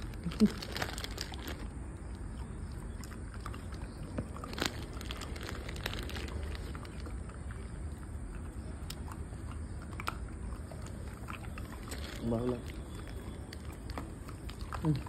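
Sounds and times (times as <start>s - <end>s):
dog chewing and crunching treat: 0.0s - 15.0s.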